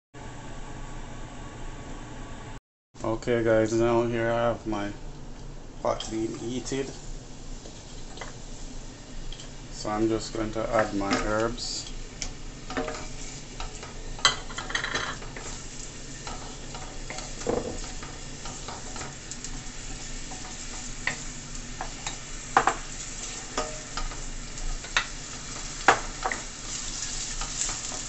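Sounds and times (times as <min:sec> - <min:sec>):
onion sizzling in hot oil: 0:05.7 - 0:28.0.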